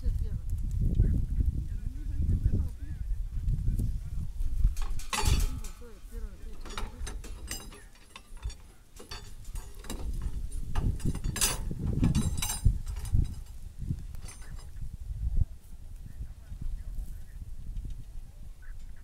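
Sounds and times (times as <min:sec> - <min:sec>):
wind rumble on microphone: 0:00.0 - 0:19.0
indistinct voices: 0:01.3 - 0:17.5
metal hardware clinking: 0:04.6 - 0:14.8.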